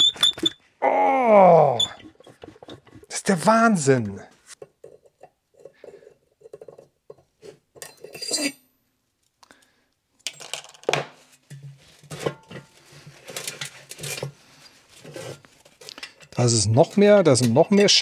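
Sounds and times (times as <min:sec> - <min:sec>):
rag rubbing on metal shaft: 0:01.8 - 0:03.7
metal drum clinking and knocking: 0:04.6 - 0:08.4, 0:16.0 - 0:18.0.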